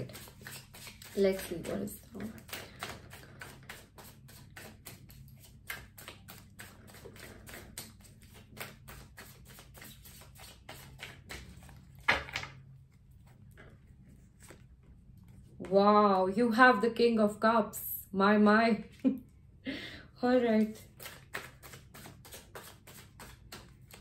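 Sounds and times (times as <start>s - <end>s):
cards rustling: 0.0s - 12.2s, 20.6s - 24.0s
cards shuffling clicks: 0.0s - 12.3s, 20.6s - 24.0s.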